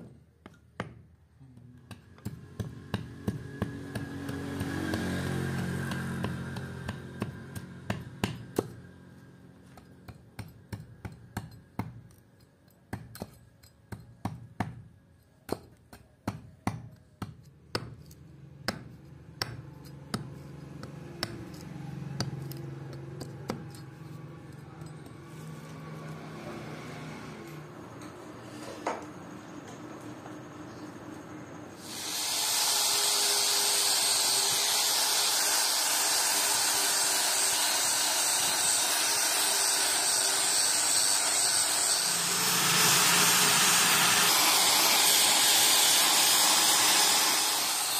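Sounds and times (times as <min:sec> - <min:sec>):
axe chopping wood: 0:01.9 - 0:08.8.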